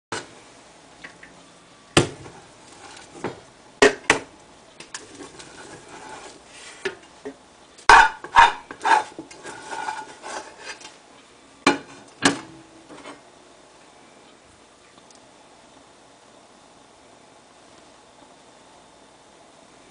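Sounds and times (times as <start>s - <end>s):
paddle scraping rice: 5.0s - 6.9s, 8.0s - 10.9s.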